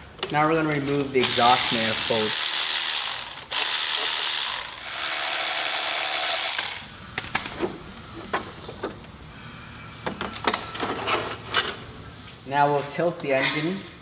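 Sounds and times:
ratchet fast clicking: 1.2s - 6.9s.

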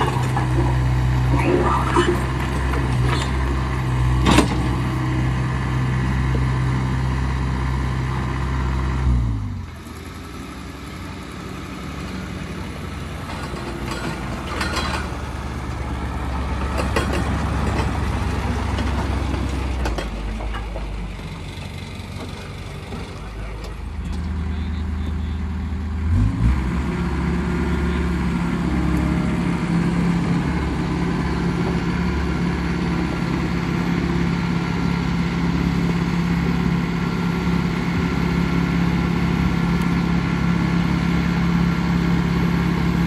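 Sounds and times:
loader engine running: 0.0s - 43.0s
quieter engine running: 0.0s - 43.0s.

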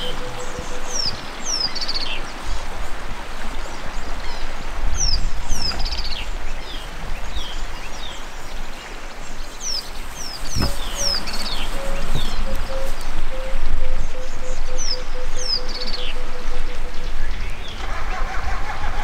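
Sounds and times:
birds whistling: 0.0s - 2.3s, 9.6s - 17.8s.

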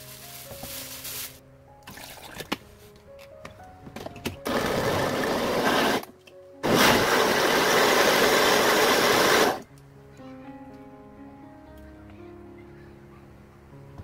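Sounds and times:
music: 0.0s - 14.0s
countertop blender running: 4.5s - 6.0s, 6.6s - 9.6s.

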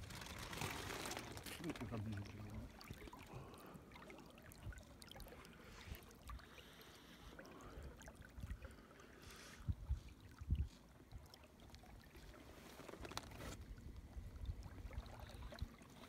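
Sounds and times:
water lapping along boat hull: 0.0s - 16.0s.

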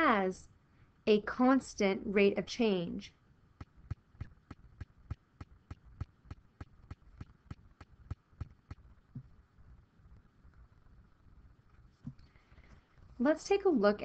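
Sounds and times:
quiet evenly spaced taps: 3.5s - 13.0s.

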